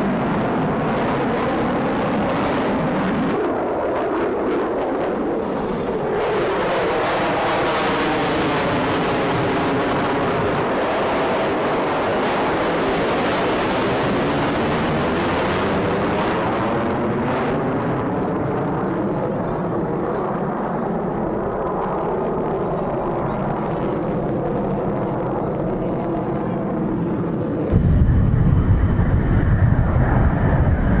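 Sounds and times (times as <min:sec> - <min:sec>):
jet engine roar: 0:00.0 - 0:31.0.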